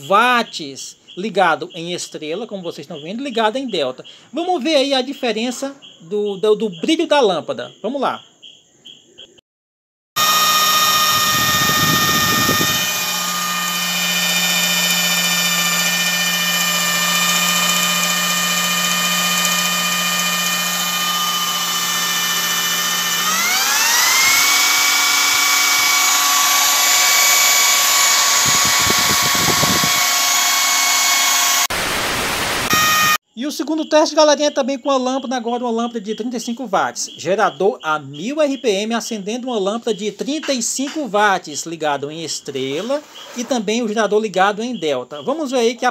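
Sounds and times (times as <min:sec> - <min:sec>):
drill spinning generator whine: 0:10.2 - 0:33.2.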